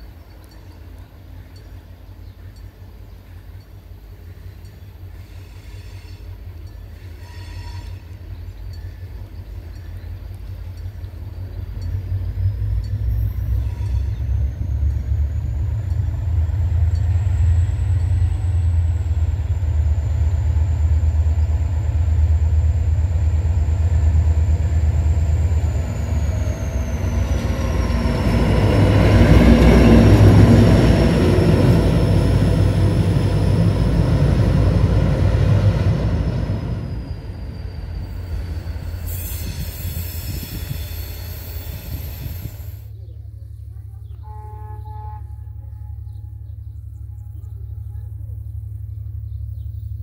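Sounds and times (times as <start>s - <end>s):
diesel locomotive engine rumbling: 0.0s - 50.0s
thin high whine: 11.8s - 43.0s.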